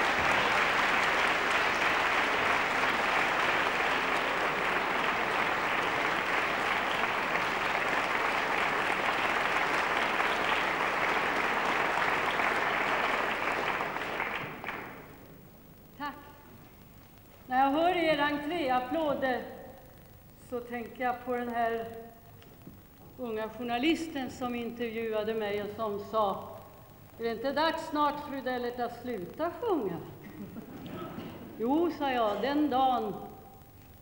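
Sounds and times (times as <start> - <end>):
audience applauding: 0.0 - 15.4.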